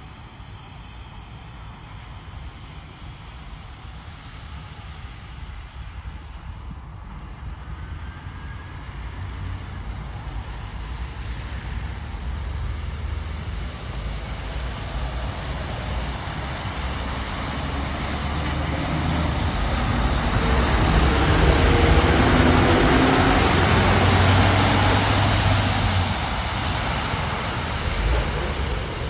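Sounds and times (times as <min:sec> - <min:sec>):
tyre noise on wet road: 0:07.8 - 0:29.0
truck diesel engine running: 0:15.5 - 0:29.0.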